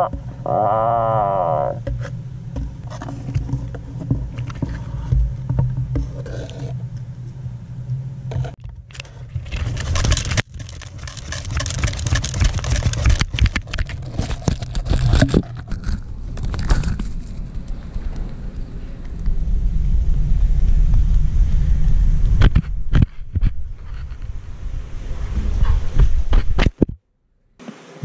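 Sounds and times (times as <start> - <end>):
steady low rumble: 0.0 - 26.8
dry grass rustling and scraping: 8.4 - 19.0, 22.4 - 24.6.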